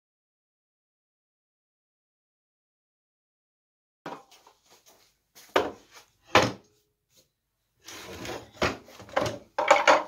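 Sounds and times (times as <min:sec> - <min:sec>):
wooden chair knocking on workbench: 0:05.5 - 0:06.6, 0:08.6 - 0:10.0
clattering and scraping wood: 0:07.8 - 0:10.0.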